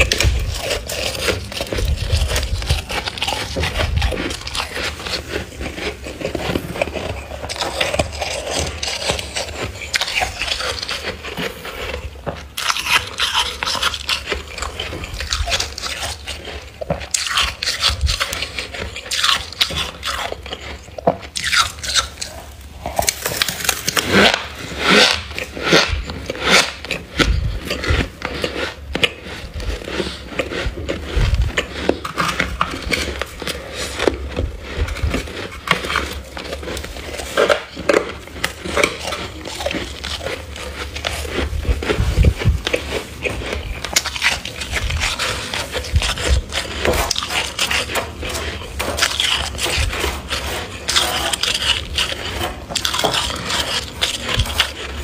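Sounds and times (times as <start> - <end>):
crunchy chewing of frost: 0.0 - 55.0
metal spoon scraping frost: 0.0 - 55.0.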